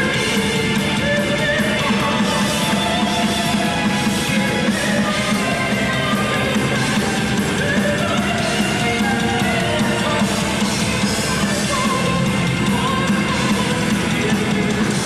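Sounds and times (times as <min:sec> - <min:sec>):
metal band playing live: 0:00.0 - 0:15.0.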